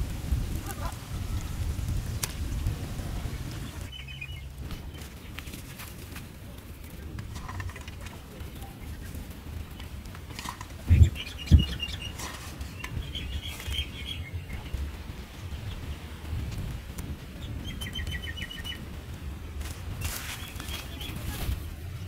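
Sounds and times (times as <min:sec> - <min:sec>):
steady low rumble: 0:00.0 - 0:22.0
small birds chirping: 0:00.5 - 0:22.0
low thumps: 0:09.2 - 0:20.7.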